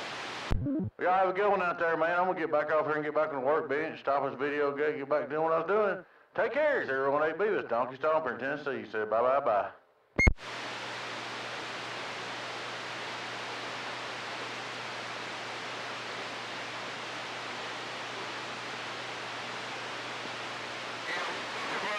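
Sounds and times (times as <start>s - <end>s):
radio static hiss: 10.2s - 21.9s.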